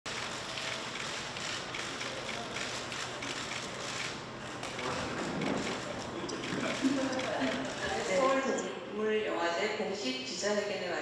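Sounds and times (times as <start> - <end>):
camera shutters clicking: 0.2 - 8.4.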